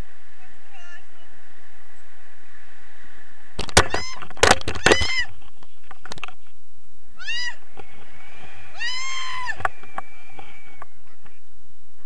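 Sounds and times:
wind noise on microphone: 0:00.0 - 0:12.0
person squealing: 0:07.2 - 0:07.6, 0:08.8 - 0:09.6.

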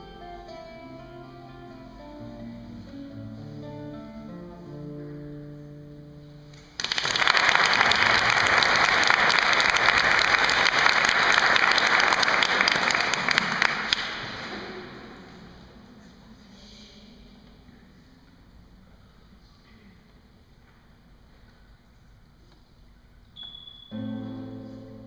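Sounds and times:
classical guitar notes: 0:00.0 - 0:06.8, 0:23.4 - 0:25.0
audience applause: 0:06.7 - 0:15.0.

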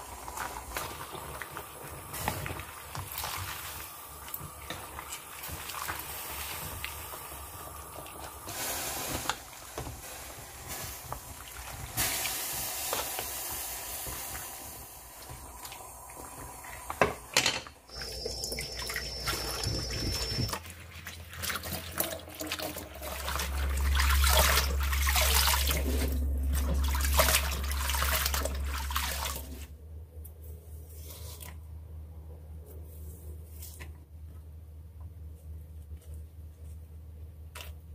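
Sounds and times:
tap water running into colander: 0:00.0 - 0:29.7.

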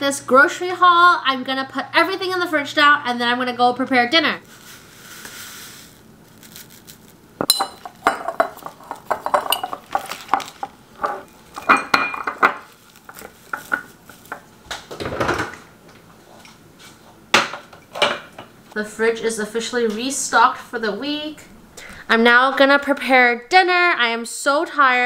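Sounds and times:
packaging rustling: 0:04.4 - 0:07.9, 0:08.6 - 0:11.6, 0:12.6 - 0:14.4
glass jars clinking: 0:07.4 - 0:14.4.

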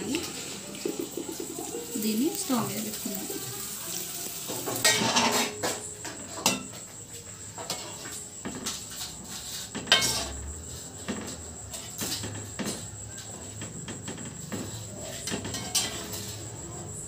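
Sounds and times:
spoon scraping and clinking pan: 0:04.5 - 0:06.8, 0:07.6 - 0:10.4, 0:15.0 - 0:16.4.

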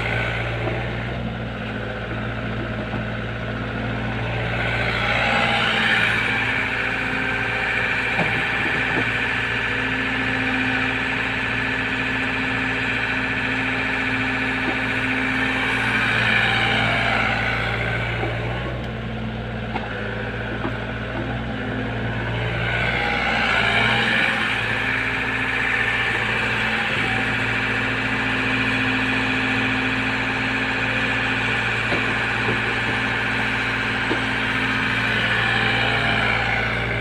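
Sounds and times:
excavator diesel engine: 0:00.0 - 0:37.0.

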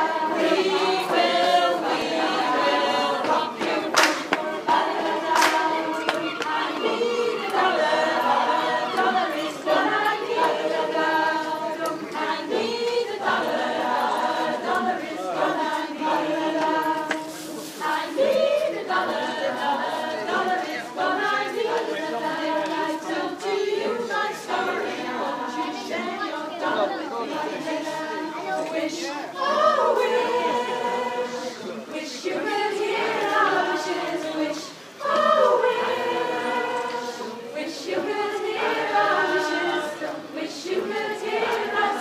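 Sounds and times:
choir singing a cappella: 0:00.0 - 0:42.0.

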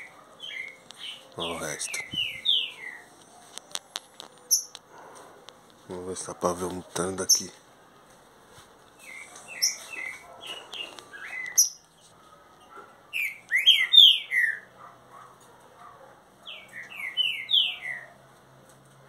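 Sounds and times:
bird singing whistled song: 0:01.9 - 0:03.0, 0:10.8 - 0:11.8, 0:13.2 - 0:14.7, 0:16.5 - 0:18.1.

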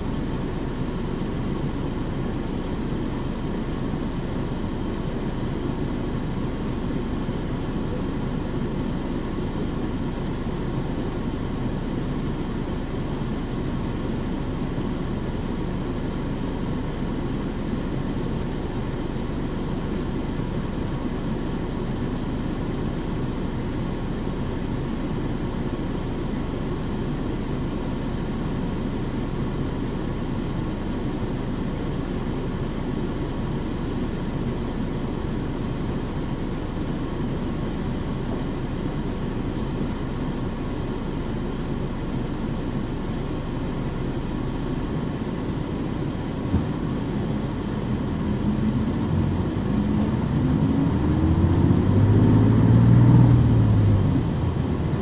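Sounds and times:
bus diesel engine hum: 0:00.0 - 0:55.0
road noise: 0:44.7 - 0:55.0.

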